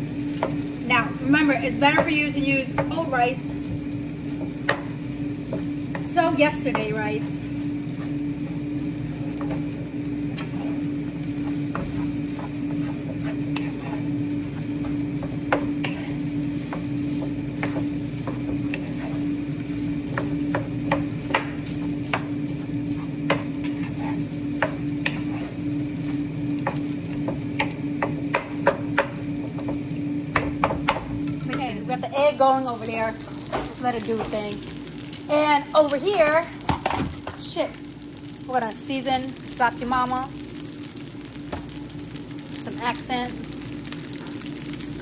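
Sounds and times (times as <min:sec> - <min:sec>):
food sizzling in oil: 0:00.0 - 0:45.0
steady hum: 0:00.0 - 0:45.0
spoon stirring food in pan: 0:10.3 - 0:19.2, 0:31.6 - 0:45.0.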